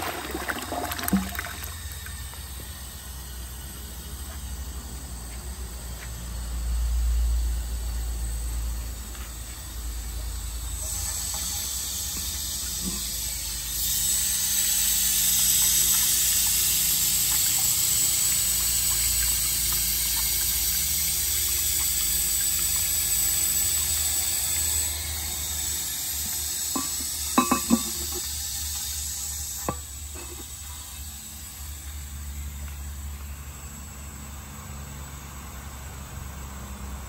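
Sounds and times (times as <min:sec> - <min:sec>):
cistern refilling with water hiss: 0:00.0 - 0:37.0
ceramic cistern lid clacks: 0:26.7 - 0:28.2.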